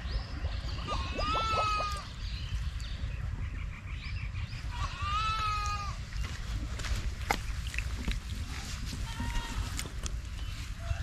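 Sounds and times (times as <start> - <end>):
goat bleating: 0.9 - 2.1, 4.7 - 6.0, 9.0 - 9.8.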